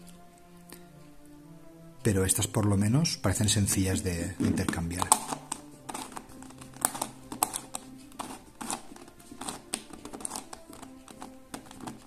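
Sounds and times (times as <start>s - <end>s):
plastic puzzle clicking: 4.4s - 12.0s.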